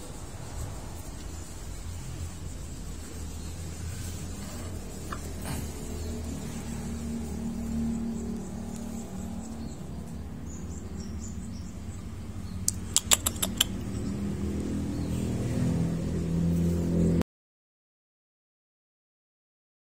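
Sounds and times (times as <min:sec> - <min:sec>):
low mechanical hum: 0:00.0 - 0:12.8
sharp clicks: 0:12.6 - 0:13.9.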